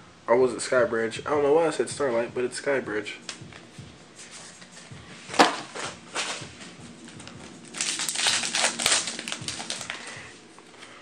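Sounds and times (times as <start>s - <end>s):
foil wrapper crinkling and tearing: 7.0s - 10.2s.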